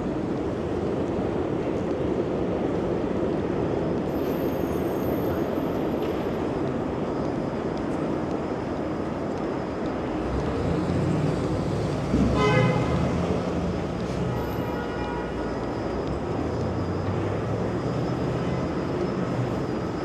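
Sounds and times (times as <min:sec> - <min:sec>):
city street traffic: 0:00.0 - 0:20.0
heavy vehicle engine rumbling: 0:10.1 - 0:20.0.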